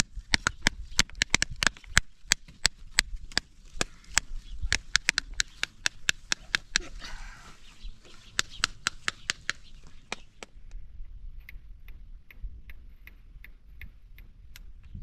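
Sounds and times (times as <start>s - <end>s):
sharp taps: 0.2s - 6.9s, 8.1s - 10.8s.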